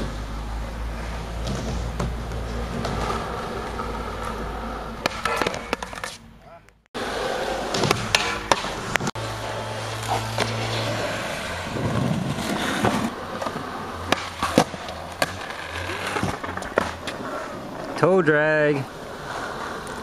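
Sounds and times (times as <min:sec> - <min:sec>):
skateboard wheels rolling on concrete: 0:00.0 - 0:20.0
skateboard clacking on ground: 0:05.0 - 0:06.2, 0:07.6 - 0:09.1, 0:11.9 - 0:18.0.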